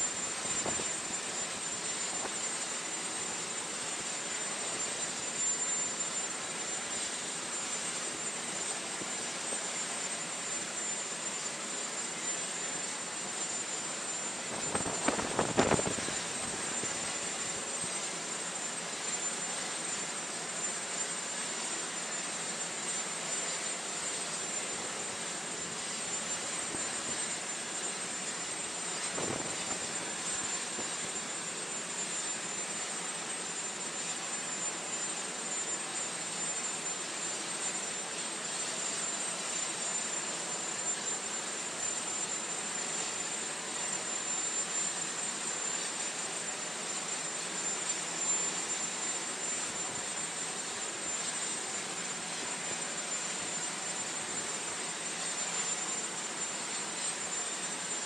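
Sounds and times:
high turbine whine: 0.0 - 58.0
turbine engine rushing noise: 14.5 - 17.3, 29.0 - 30.8.

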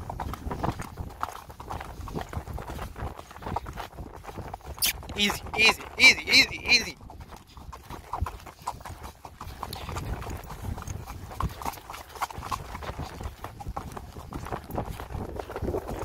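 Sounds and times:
horse hoofbeats on dirt: 0.0 - 16.0.

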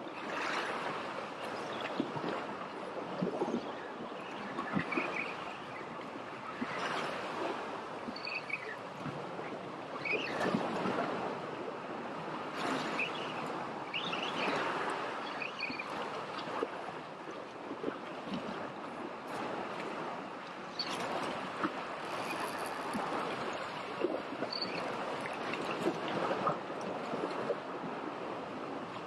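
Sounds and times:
waves washing against rocks: 17.8 - 28.5.

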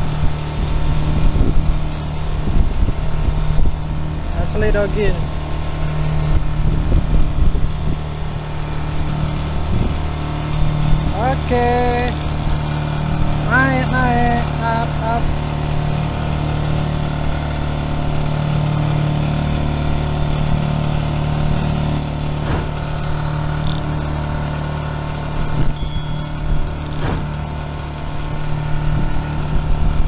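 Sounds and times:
boat engine humming: 0.0 - 30.0
sharp knocks: 22.4 - 22.8, 26.9 - 27.4.

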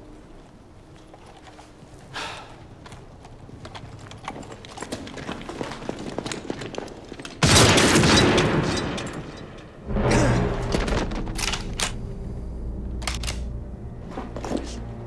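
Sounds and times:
low rumbling music: 9.8 - 15.0.

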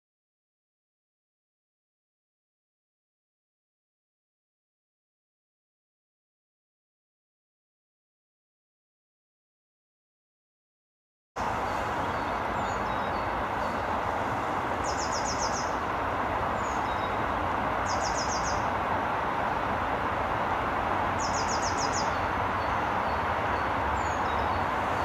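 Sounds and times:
songbird singing: 11.4 - 25.0
steady distant roar: 11.4 - 25.0
faint bird chirps: 14.8 - 15.8, 17.9 - 18.7.

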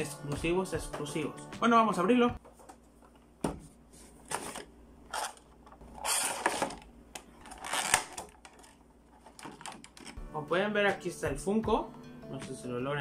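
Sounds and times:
cardboard and plastic rustling: 2.4 - 10.2.

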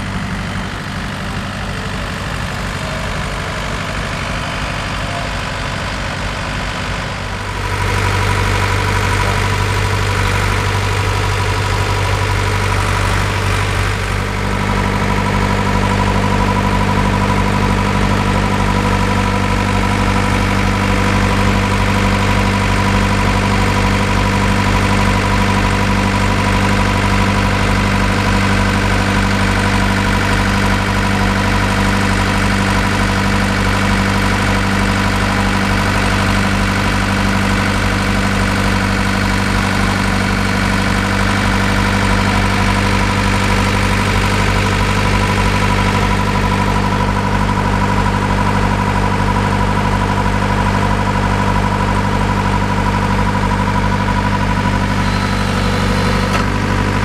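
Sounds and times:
drilling rig engine running: 0.0 - 57.0.

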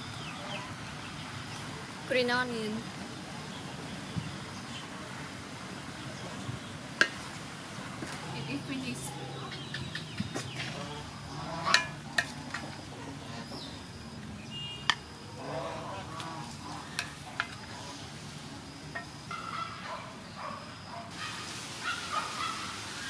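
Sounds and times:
fowl calling: 10.6 - 12.2, 15.4 - 18.1, 19.3 - 23.0.

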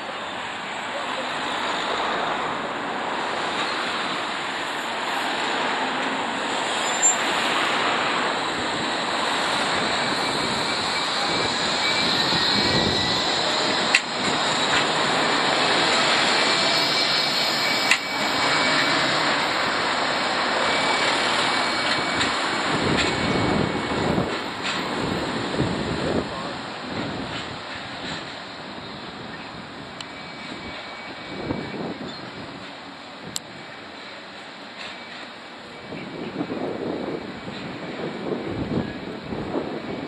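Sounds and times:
tram wheels rumbling on rails: 0.0 - 40.0
wind on microphone: 6.6 - 17.1, 18.3 - 32.6, 35.8 - 40.0.

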